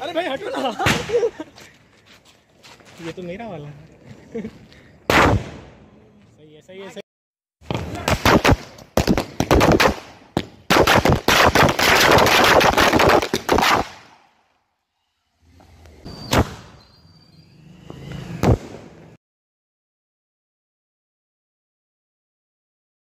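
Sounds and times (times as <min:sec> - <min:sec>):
firecrackers exploding: 0:07.6 - 0:14.3.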